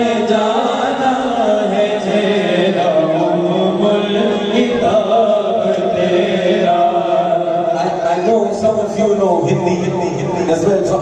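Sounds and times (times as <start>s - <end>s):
men singing devotional song: 0.0s - 11.0s.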